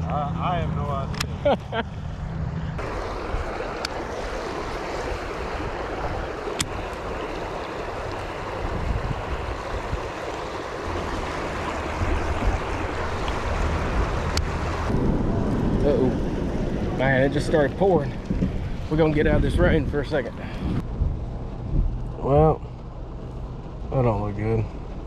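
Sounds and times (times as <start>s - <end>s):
water rushing over weir: 2.8s - 20.8s.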